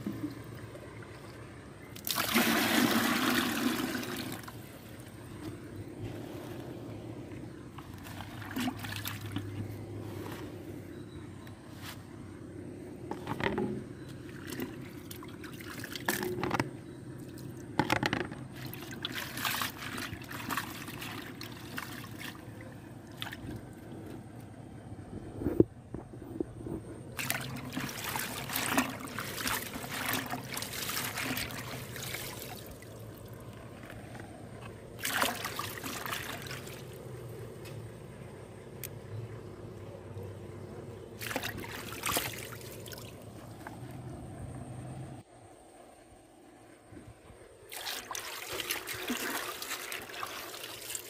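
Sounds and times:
water splashing in a basin: 0:00.0 - 0:05.3, 0:07.7 - 0:09.7, 0:14.2 - 0:23.8, 0:27.2 - 0:33.5, 0:34.9 - 0:37.1, 0:41.2 - 0:43.3, 0:47.7 - 0:51.0.

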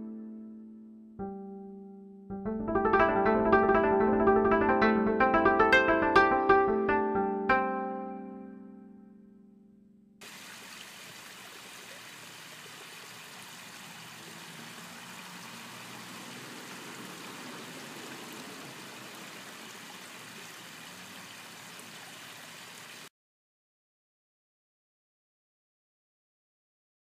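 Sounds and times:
waterfall splashing into pond: 0:10.2 - 0:23.1.

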